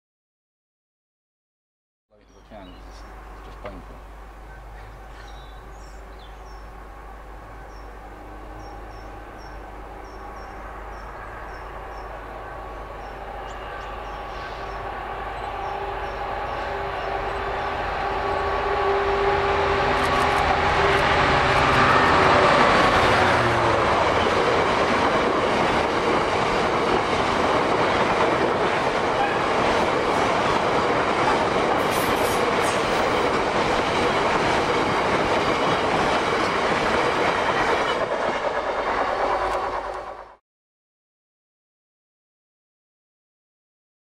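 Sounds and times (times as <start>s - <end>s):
diesel locomotive engine: 2.3s - 40.4s
train wheels clattering on rails: 19.9s - 40.2s.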